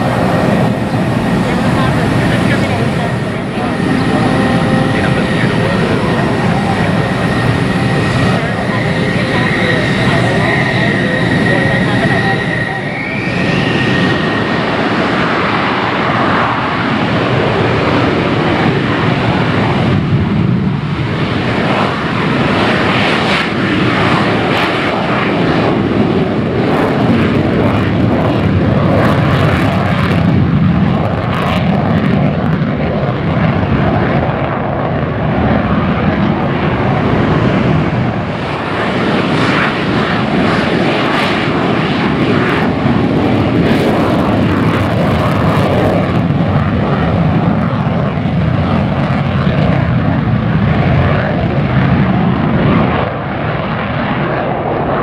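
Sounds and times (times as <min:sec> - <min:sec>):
fighter jets taking off: 0:00.0 - 0:55.0.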